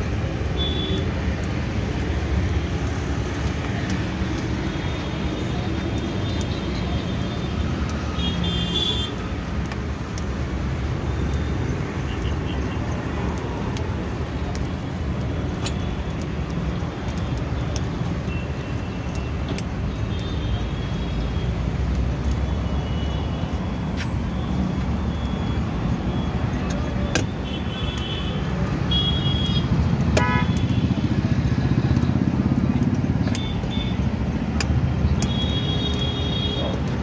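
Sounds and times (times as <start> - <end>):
street traffic rumble: 0.0 - 37.0
vehicle horn toots: 30.2 - 30.8
sharp clicks: 31.9 - 36.9.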